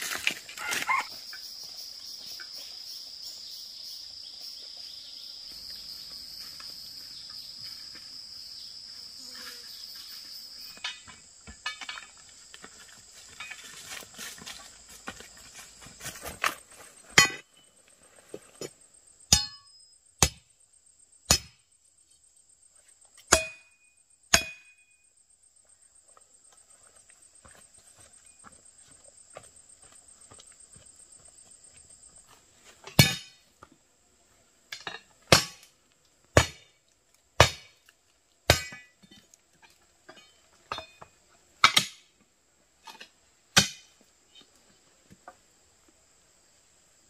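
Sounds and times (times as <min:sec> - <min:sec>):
footsteps on leafy path: 0:00.0 - 0:01.2, 0:05.5 - 0:08.6, 0:12.1 - 0:17.1
insects calling: 0:00.0 - 0:35.2
metal hoe striking dirt: 0:10.7 - 0:12.2, 0:16.0 - 0:17.6, 0:19.3 - 0:20.5, 0:21.3 - 0:21.6, 0:23.2 - 0:24.9, 0:32.7 - 0:33.5, 0:34.7 - 0:36.8, 0:37.4 - 0:42.2, 0:42.8 - 0:44.0.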